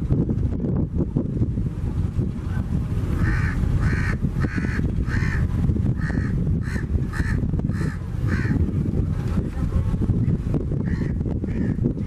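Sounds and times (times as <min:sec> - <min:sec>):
rough water: 0:00.0 - 0:12.0
wind rumble on microphone: 0:00.0 - 0:12.0
crow cawing: 0:03.2 - 0:05.4, 0:06.0 - 0:08.6.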